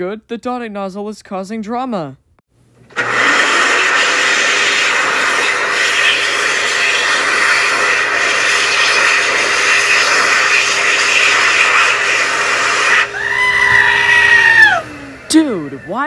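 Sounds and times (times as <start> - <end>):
hand dryer air rush: 2.9 - 15.6.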